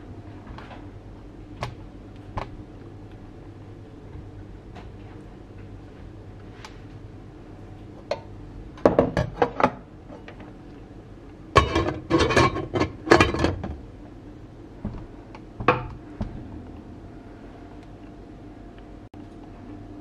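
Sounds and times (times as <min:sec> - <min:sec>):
dishes and utensils clinking: 0:11.6 - 0:13.7.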